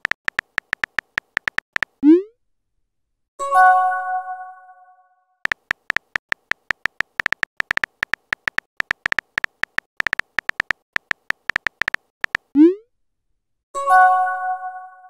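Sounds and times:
phone keyboard typing clicks: 0:00.0 - 0:02.0, 0:05.5 - 0:12.5.

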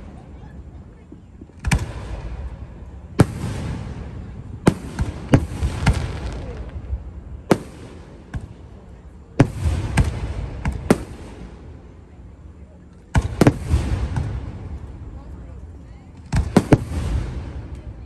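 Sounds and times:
lingering hiss: 0:01.5 - 0:18.0.

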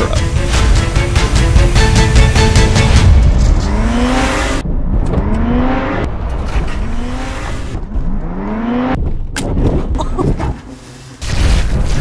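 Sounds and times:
car engine revving: 0:00.3 - 0:09.3.

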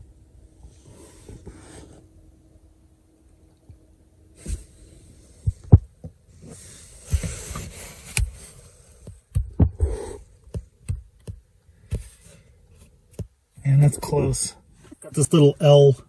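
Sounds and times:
soft low handling thumps: 0:03.6 - 0:15.0.

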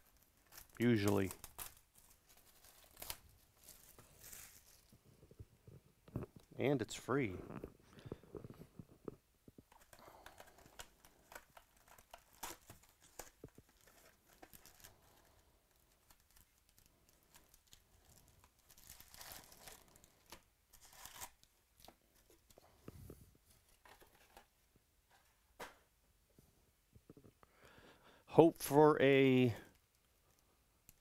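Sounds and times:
foil packs rustling: 0:00.0 - 0:04.9, 0:10.0 - 0:21.4.

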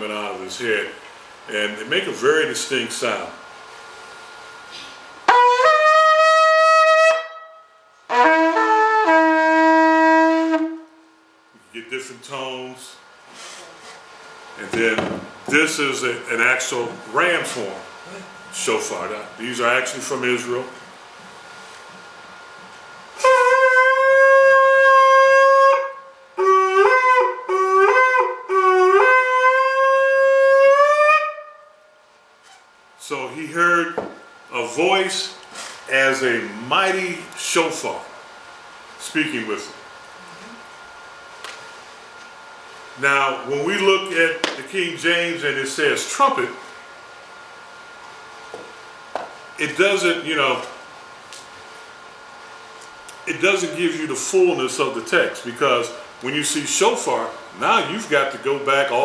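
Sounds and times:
shofar blasts: 0:05.3 - 0:11.2, 0:23.2 - 0:31.9.

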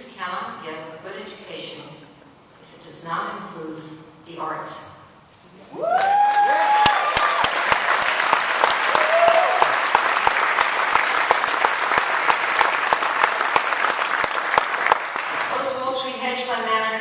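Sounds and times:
people cheering and whooping: 0:05.7 - 0:07.8, 0:08.8 - 0:09.9
audience clapping: 0:05.9 - 0:15.6.

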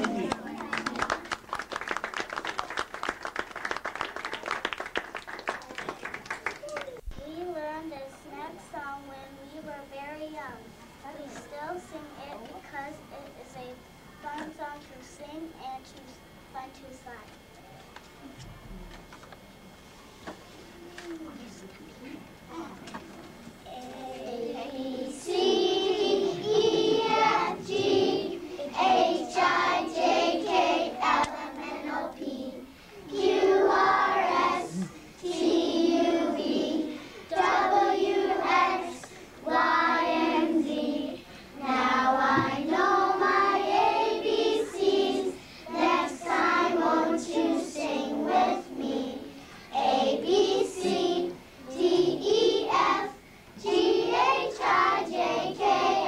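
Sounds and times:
children singing in unison: 0:24.0 - 0:56.0.

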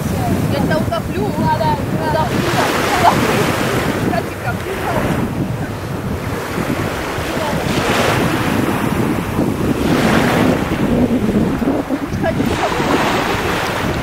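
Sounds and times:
small waves washing ashore: 0:00.0 - 0:14.0
wind buffeting microphone: 0:00.0 - 0:14.0.

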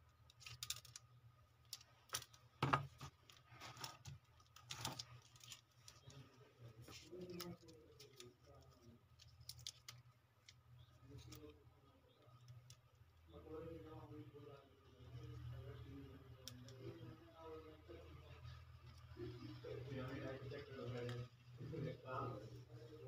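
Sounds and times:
steady low hum: 0:00.0 - 0:23.0
plastic phone parts clicking: 0:00.2 - 0:06.2, 0:07.2 - 0:10.6.

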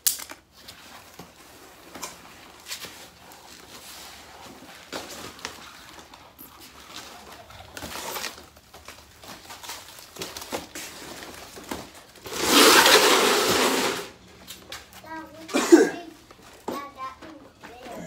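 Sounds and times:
foam and cardboard rustling: 0:00.4 - 0:18.0
loud rustling rush: 0:12.2 - 0:14.2.

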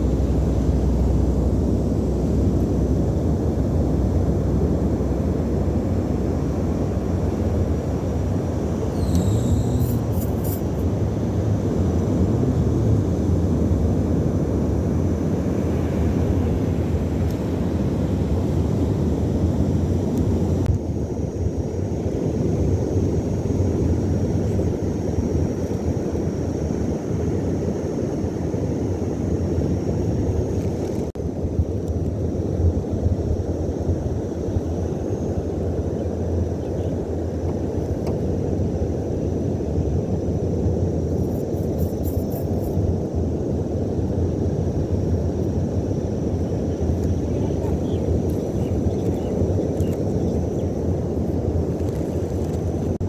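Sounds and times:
faint high-pitched whine: 0:00.0 - 0:53.0
low outdoor rumble: 0:00.0 - 0:53.0.

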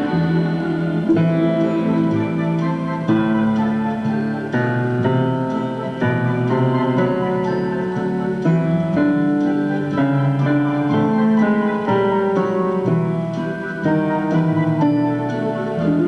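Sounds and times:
instrumental piano music: 0:00.0 - 0:16.0.

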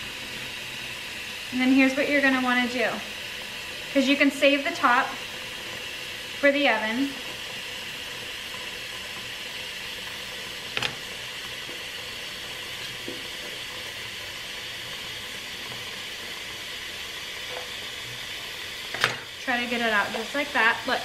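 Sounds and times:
faucet water splashing into pot: 0:00.1 - 0:21.0.

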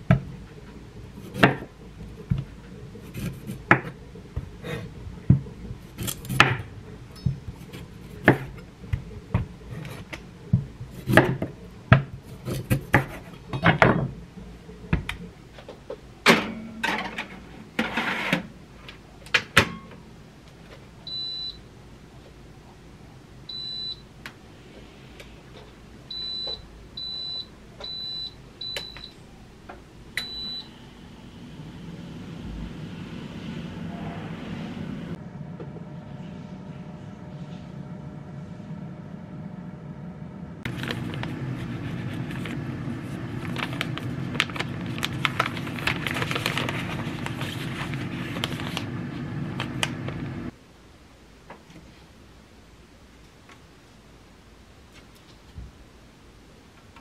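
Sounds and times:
air fryer fan humming: 0:26.0 - 0:50.6.

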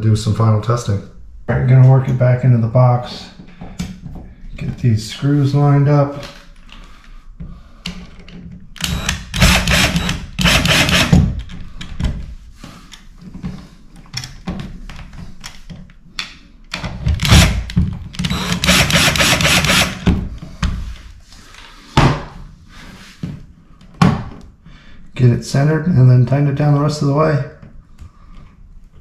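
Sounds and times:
cordless drill driving screws: 0:08.8 - 0:11.3, 0:17.2 - 0:17.6, 0:18.2 - 0:20.0.

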